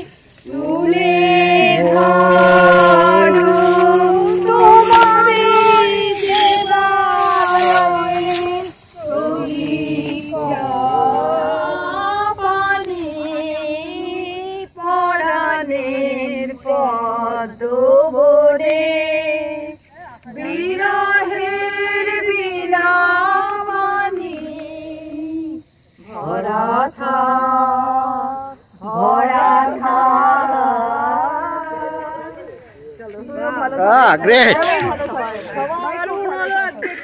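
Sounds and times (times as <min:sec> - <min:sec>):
woman singing: 0:00.0 - 0:32.5.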